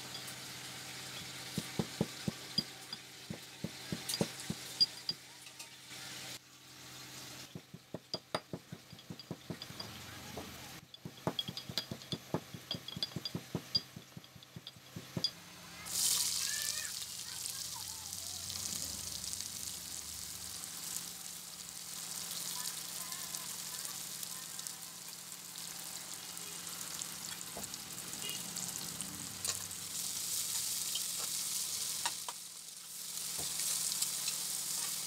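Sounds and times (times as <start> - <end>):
pestle pounding in brass mortar: 1.5 - 5.0, 7.5 - 15.3.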